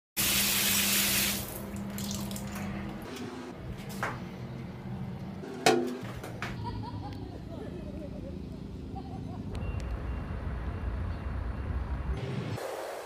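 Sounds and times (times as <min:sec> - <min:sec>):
water gushing from tap: 0:00.2 - 0:02.6.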